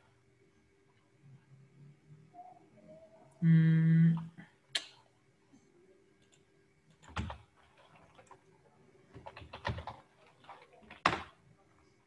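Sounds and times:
computer keyboard typing: 6.2 - 8.4, 9.1 - 11.3.

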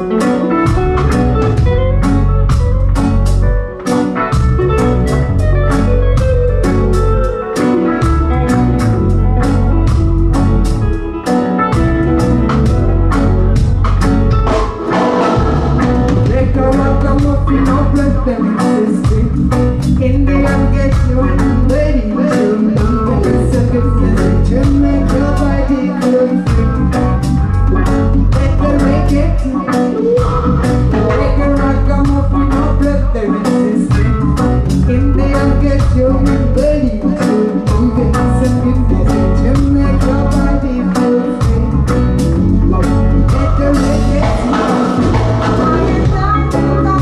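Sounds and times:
heavy bass: 0.0 - 47.0
reggae band playing: 0.0 - 47.0
woman singing lead vocal: 15.0 - 27.3, 28.2 - 34.2, 34.8 - 42.2, 43.2 - 47.0.

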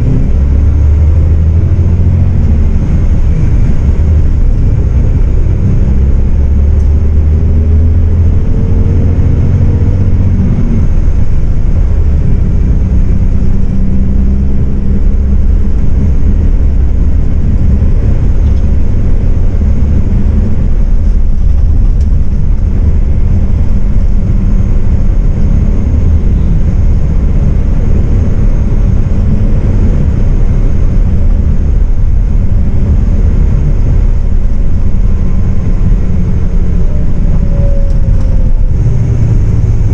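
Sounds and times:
bus engine drone: 0.0 - 39.9
road and tyre rumble: 0.0 - 39.9.

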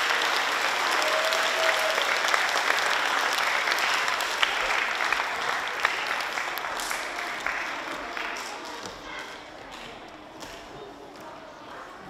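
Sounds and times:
children applauding: 0.0 - 9.4.

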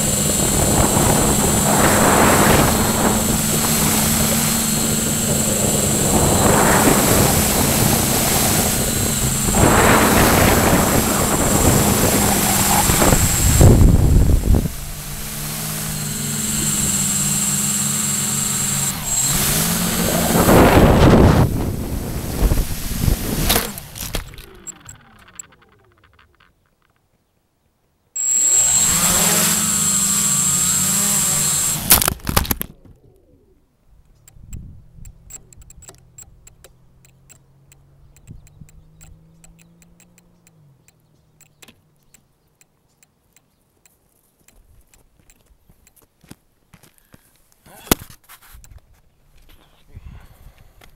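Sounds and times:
wind noise: 0.0 - 25.1, 33.9 - 35.9
drone propellers humming: 0.0 - 26.5, 28.2 - 32.6
faint ticks and clicks: 34.0 - 47.6.

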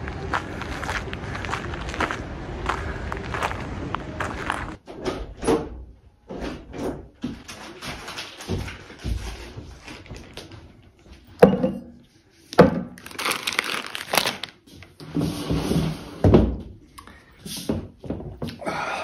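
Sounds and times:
glass bottles knocking on wooden table: 11.4 - 12.0.

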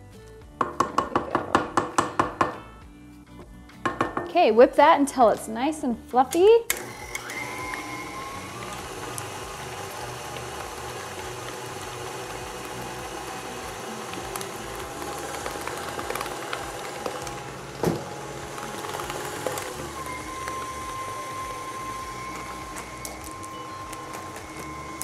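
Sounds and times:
stand mixer running: 6.7 - 25.0.

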